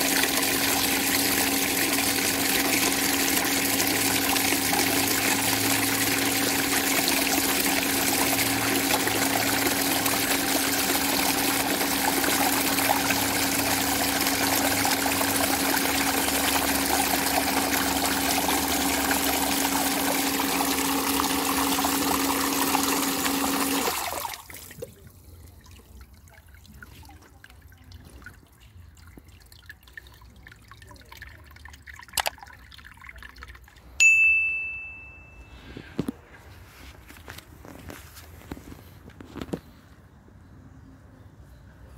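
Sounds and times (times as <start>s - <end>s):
pump motor humming: 0.0s - 26.0s
water gushing into a plastic tub: 0.0s - 34.0s
short high beep: 34.0s - 35.7s.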